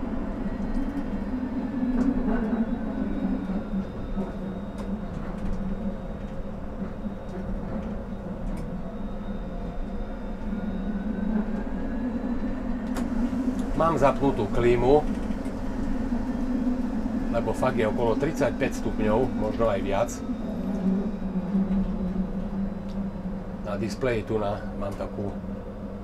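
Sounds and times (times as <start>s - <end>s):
faint whine: 0.0s - 26.0s
tram hum: 0.0s - 26.0s
air conditioning running: 11.0s - 26.0s.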